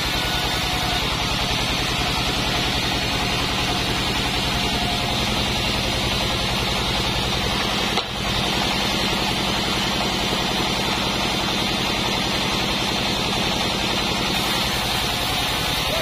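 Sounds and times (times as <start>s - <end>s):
band saw drive pulsing: 0.0s - 16.0s
saw blade hissing through log: 14.2s - 16.0s.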